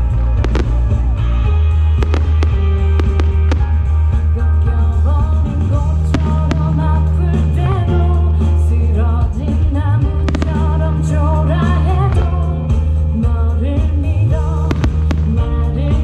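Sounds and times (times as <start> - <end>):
pop song with singing and bass: 0.0 - 16.0
sharp cracks: 2.0 - 3.8, 10.2 - 11.1, 14.6 - 15.4.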